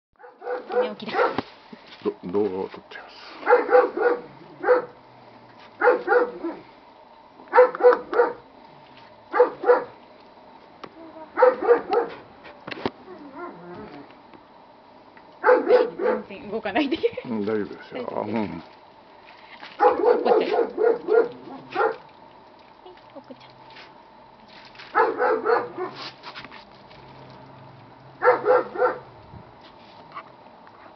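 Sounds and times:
dog barking: 0.2s - 1.4s, 3.4s - 5.0s, 5.8s - 6.6s, 7.5s - 8.4s, 9.3s - 10.0s, 11.3s - 12.2s, 15.4s - 16.3s, 19.8s - 22.0s, 24.9s - 26.0s, 28.2s - 29.1s.

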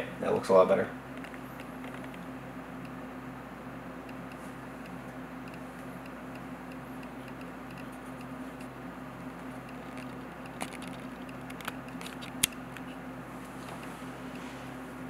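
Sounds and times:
steady low hum: 0.0s - 15.0s
fingers clicking and tapping: 4.1s - 12.9s.

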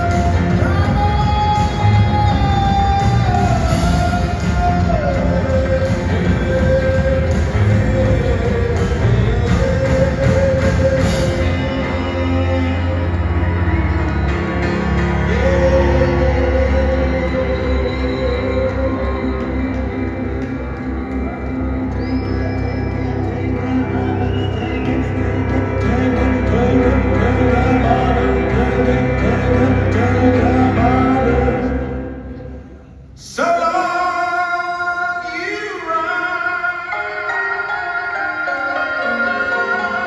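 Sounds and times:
man singing: 0.0s - 21.8s, 22.4s - 40.0s
piano: 0.0s - 40.0s.

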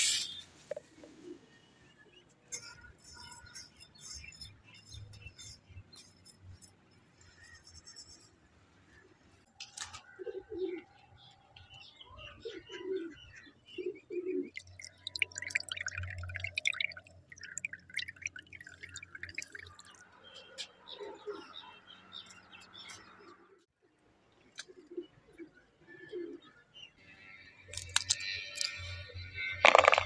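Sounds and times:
dove cooing: 10.1s - 10.8s, 13.8s - 14.5s, 24.7s - 26.5s.

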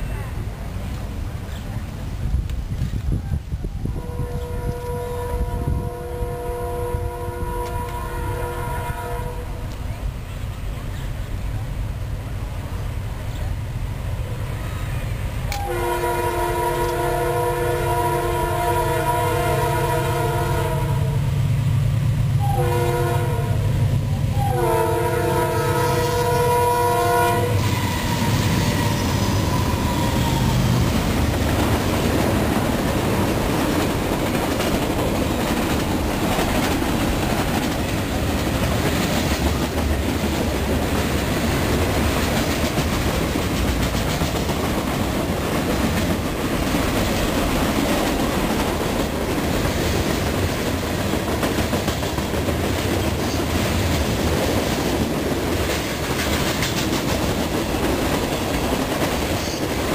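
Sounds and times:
freight train wheels on rail: 0.0s - 59.9s
locomotive horn: 3.8s - 9.7s, 15.5s - 21.3s, 22.4s - 23.7s, 24.3s - 30.8s.

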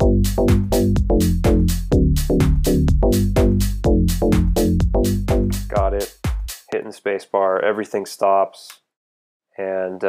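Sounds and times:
synth bass line: 0.0s - 6.1s
electronic drum loop: 0.0s - 6.7s.

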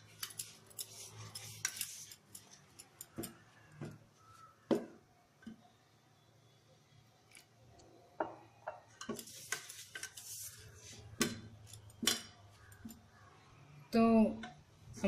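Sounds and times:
scraping and rubbing of flour: 0.0s - 2.7s, 9.1s - 11.2s
hand mixing dough in metal bowl: 0.0s - 4.6s.

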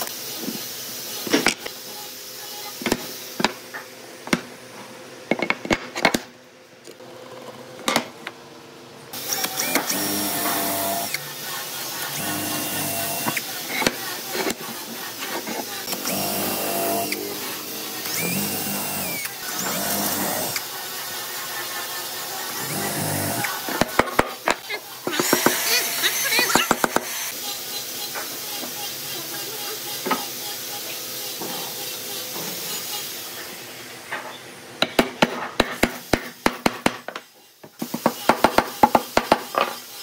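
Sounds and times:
cordless drill into wood: 9.2s - 11.2s, 15.8s - 20.7s.

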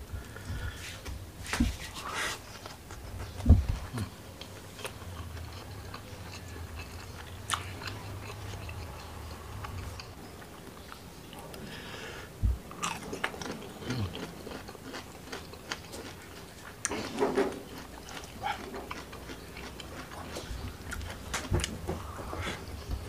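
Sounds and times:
person chewing food: 2.0s - 11.6s, 12.7s - 23.0s
soft low thumps: 3.4s - 3.9s, 12.4s - 12.7s.

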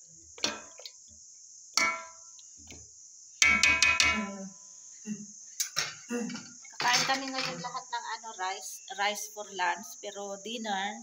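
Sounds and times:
insect chirring: 0.0s - 11.0s
metal clinking against cooking pot: 1.8s - 2.2s.

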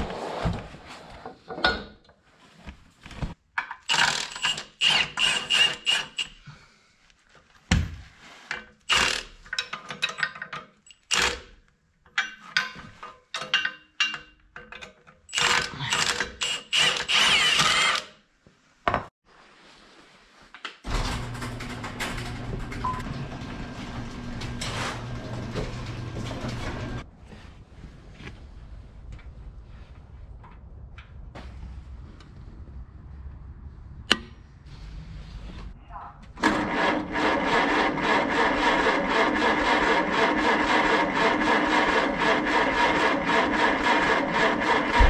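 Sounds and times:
cordless drill whirring: 15.4s - 18.1s.

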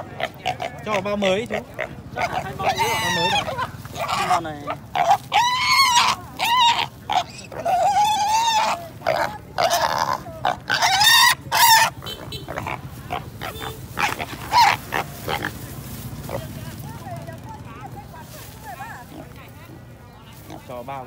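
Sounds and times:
pig squealing: 0.0s - 16.5s.

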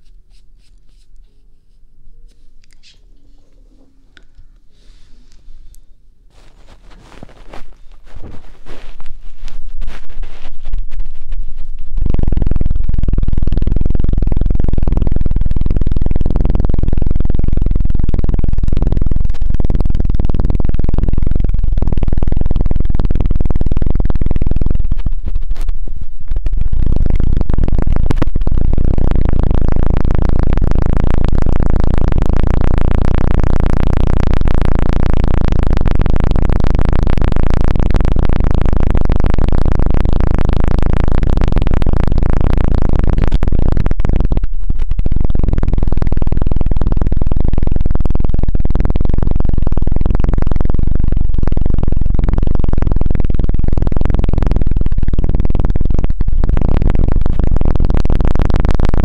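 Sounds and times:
fingers fluttering on microphone: 0.0s - 59.0s.

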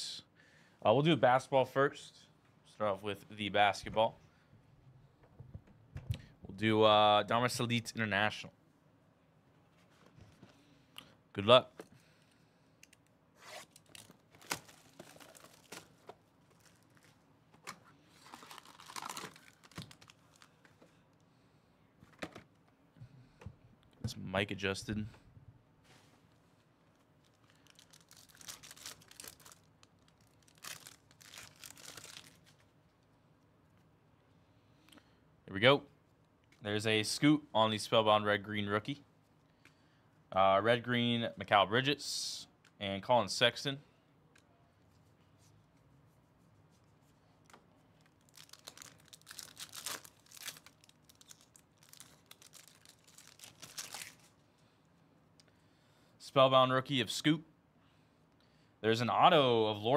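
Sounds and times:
foil wrapper tearing and crinkling: 13.6s - 15.9s, 18.2s - 20.5s, 27.4s - 32.6s, 48.0s - 54.3s.

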